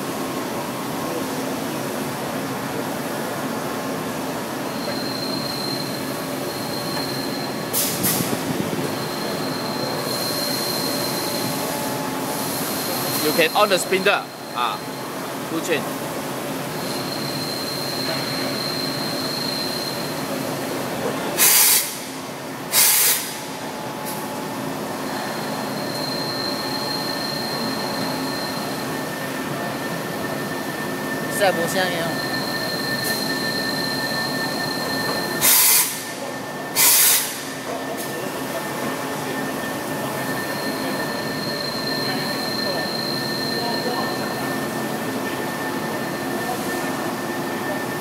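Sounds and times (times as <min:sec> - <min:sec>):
machine high whine: 0:03.9 - 0:48.0
compressed air hisses: 0:22.7 - 0:23.3.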